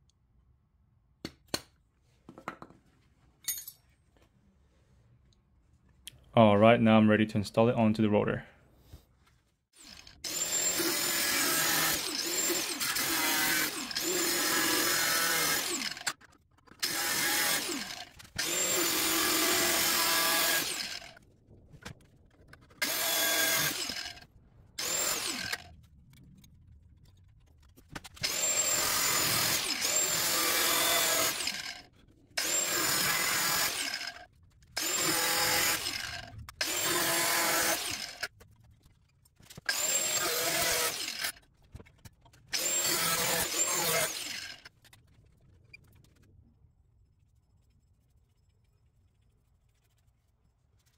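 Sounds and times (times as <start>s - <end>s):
angle grinder cutting sheet steel: 9.8s - 16.2s, 16.8s - 21.2s, 28.2s - 38.3s, 39.7s - 41.4s, 42.6s - 44.7s.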